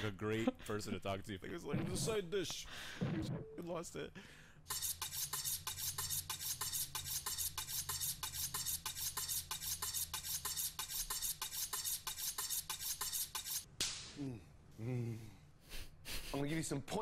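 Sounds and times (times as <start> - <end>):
knife scraping on sharpening steel: 4.7 - 13.7.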